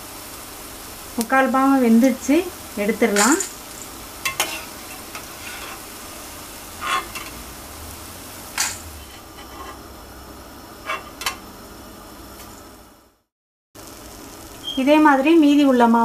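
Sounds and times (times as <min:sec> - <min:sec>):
batter drops sizzling in oil: 0:00.1 - 0:09.9
ladle scraping and clinking pan: 0:03.2 - 0:05.9, 0:06.8 - 0:07.4, 0:08.6 - 0:09.8, 0:10.8 - 0:11.4.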